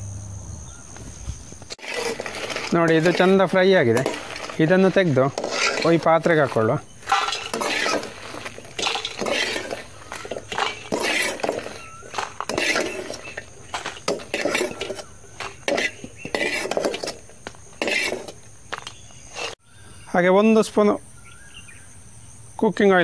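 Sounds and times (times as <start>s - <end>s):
metal spoon scraping a metal pan: 1.7s - 18.4s.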